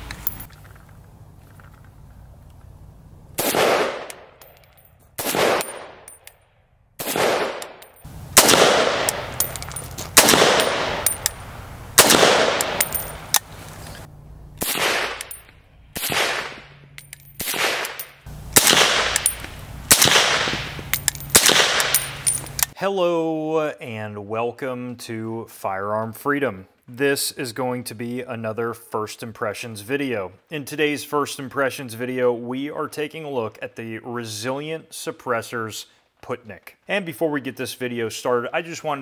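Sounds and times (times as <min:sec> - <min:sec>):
rifle shots with echo: 0:03.4 - 0:04.3, 0:05.2 - 0:06.1, 0:07.0 - 0:07.8, 0:08.4 - 0:09.6, 0:10.2 - 0:11.4, 0:12.0 - 0:13.2, 0:14.6 - 0:15.4, 0:16.0 - 0:16.8, 0:17.4 - 0:22.3
suppressed rifle shots: 0:03.4 - 0:04.3, 0:05.2 - 0:06.1, 0:07.0 - 0:07.8, 0:08.4 - 0:09.6, 0:10.2 - 0:11.4, 0:12.0 - 0:13.4, 0:14.6 - 0:16.7, 0:17.4 - 0:22.3.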